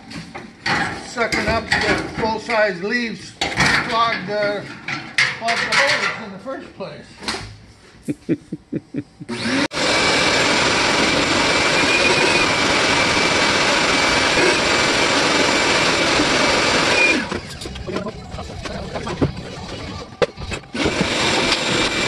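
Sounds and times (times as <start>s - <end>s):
vacuum cleaner running: 9.2s - 22.0s
high whistle: 11.7s - 12.6s.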